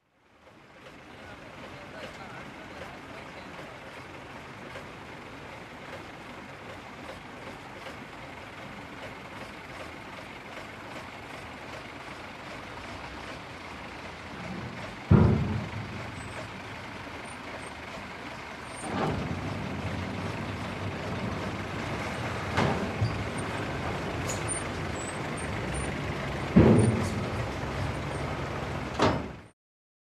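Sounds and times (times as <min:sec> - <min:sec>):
truck engines rumbling: 0:00.0 - 0:29.5
heavy thumps: 0:14.4 - 0:16.6, 0:26.3 - 0:27.8.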